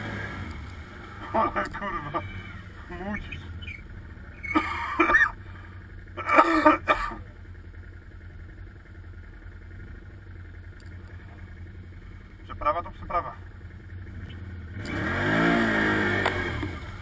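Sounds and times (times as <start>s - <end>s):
quad bike engine running: 0.0s - 17.0s
loud engine bursts: 14.0s - 17.0s.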